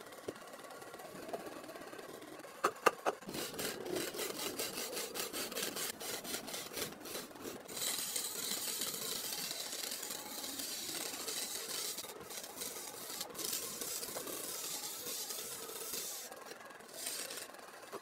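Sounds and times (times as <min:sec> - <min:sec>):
sharp knocks: 0:02.6 - 0:03.2.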